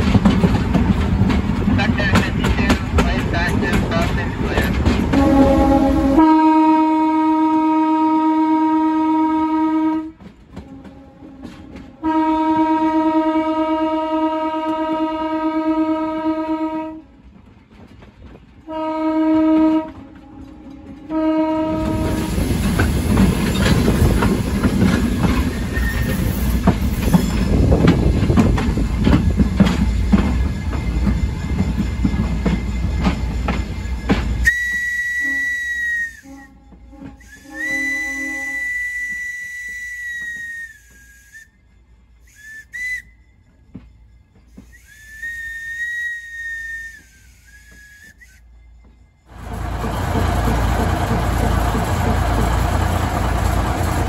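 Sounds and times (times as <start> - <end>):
train wheels clattering on rails: 0.0 - 6.1, 9.9 - 13.3, 17.0 - 41.4, 42.7 - 54.0
locomotive horn blasts: 5.1 - 17.1, 18.7 - 22.4, 34.4 - 41.4
high whistle blasts: 25.7 - 26.4, 34.4 - 43.5, 44.6 - 49.0.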